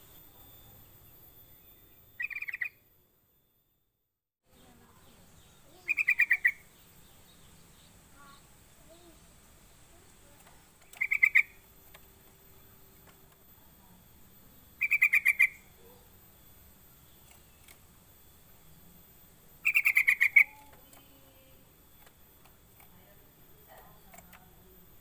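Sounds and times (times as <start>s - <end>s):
bird calling with bubbling notes: 2.2s - 2.8s, 5.8s - 6.7s, 10.9s - 11.6s, 14.8s - 16.0s, 19.6s - 20.8s.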